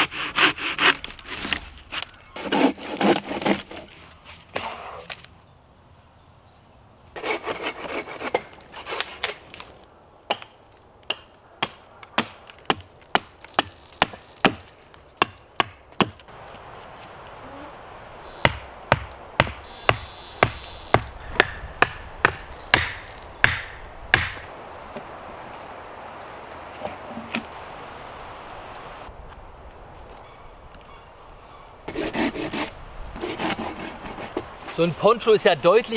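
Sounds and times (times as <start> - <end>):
wood scraping and rubbing: 0.0 - 5.3, 7.2 - 9.7, 26.2 - 27.6, 31.8 - 35.9
axe striking wooden stake: 10.3 - 16.2, 18.5 - 24.5.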